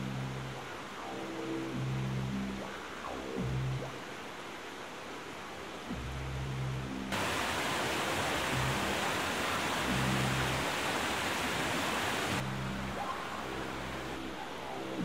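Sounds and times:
low sustained music notes: 0.0 - 15.0
floodwater rushing: 7.1 - 12.4.

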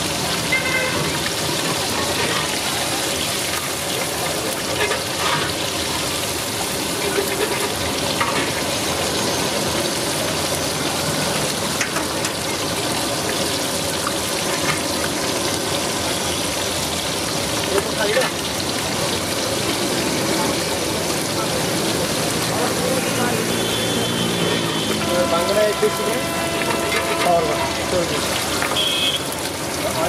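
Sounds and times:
chicken deep-frying in oil: 0.0 - 30.0
ladle stirring oil: 0.8 - 5.9, 6.6 - 8.7, 25.2 - 28.8.

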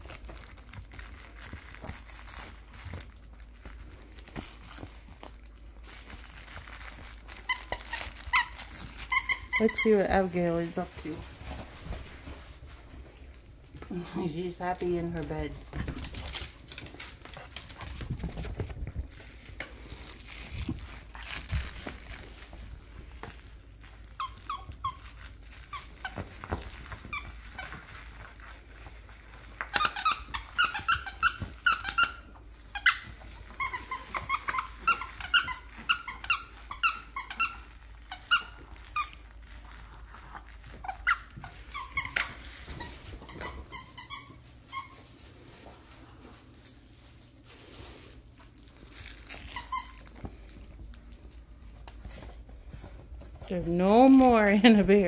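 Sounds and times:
squeaky toy squeaking: 7.4 - 10.1, 24.1 - 26.2, 29.7 - 39.2, 40.8 - 45.0.

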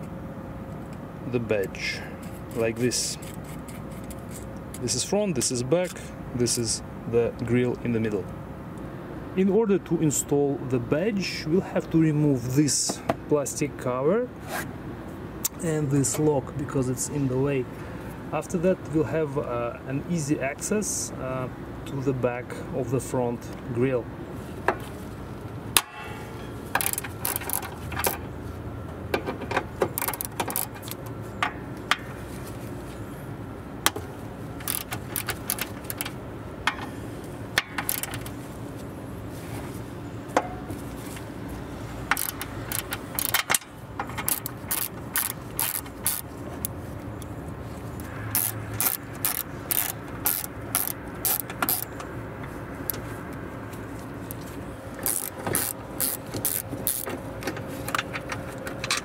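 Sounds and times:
socket ratchet clicking: 26.7 - 28.2, 29.9 - 31.1, 34.6 - 36.9, 37.6 - 38.3, 42.0 - 46.7, 48.3 - 52.1, 55.0 - 57.2.

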